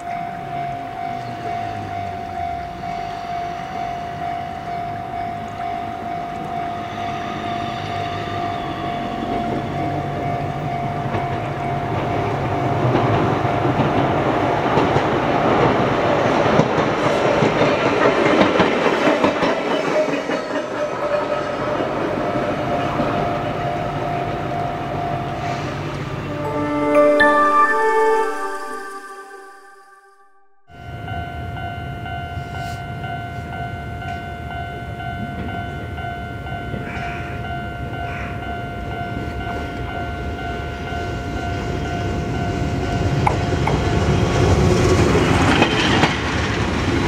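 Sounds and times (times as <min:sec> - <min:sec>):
electric train passing: 0:00.0 - 0:47.0
wheels clicking over rail joints: 0:09.3 - 0:23.7
steady tone: 0:23.4 - 0:31.7.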